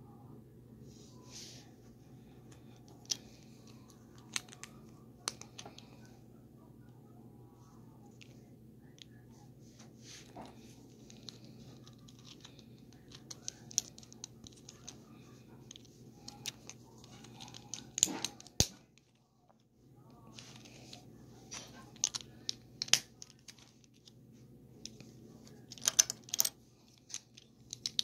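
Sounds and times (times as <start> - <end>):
plastic toy bricks clicking: 11.2 - 15.0, 21.9 - 23.6, 25.7 - 28.0.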